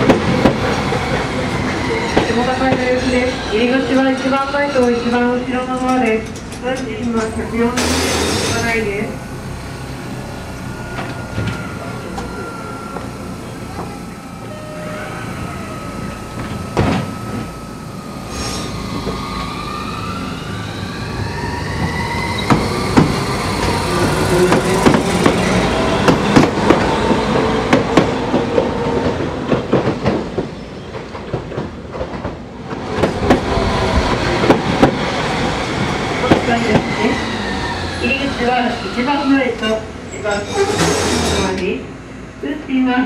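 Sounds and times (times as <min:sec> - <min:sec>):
tram electric motors whining: 0:00.0 - 0:43.0.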